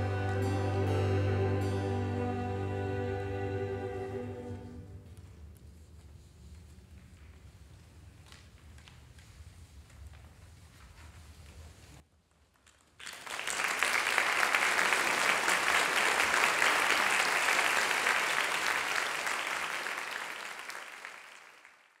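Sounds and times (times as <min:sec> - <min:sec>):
audience applauding: 0:00.0 - 0:04.8, 0:13.0 - 0:22.0.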